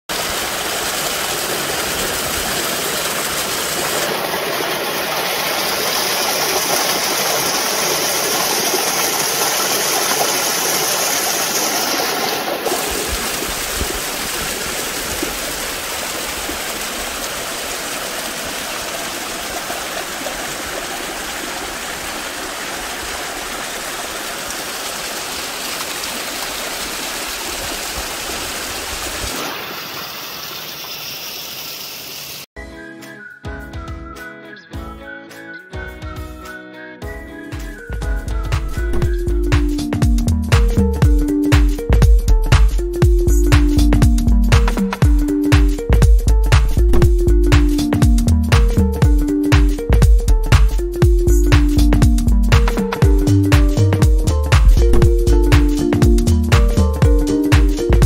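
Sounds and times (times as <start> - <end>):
stream and waterfall rushing: 0.1 - 32.5.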